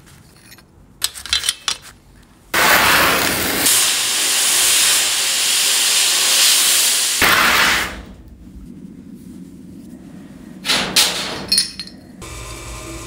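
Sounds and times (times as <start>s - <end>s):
media blaster hissing: 2.6s - 8.2s.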